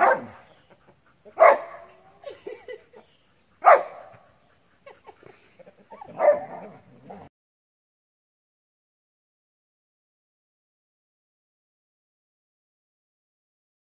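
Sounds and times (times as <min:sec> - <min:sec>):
dogs barking sharply: 0:00.0 - 0:00.5, 0:01.2 - 0:02.4, 0:03.6 - 0:04.4, 0:05.9 - 0:07.3
dogs yipping: 0:00.0 - 0:07.3.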